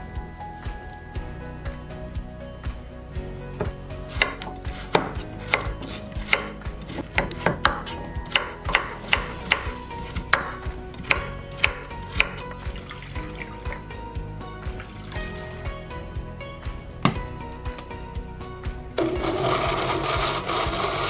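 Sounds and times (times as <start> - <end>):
knife chopping on wooden board: 3.6 - 12.4.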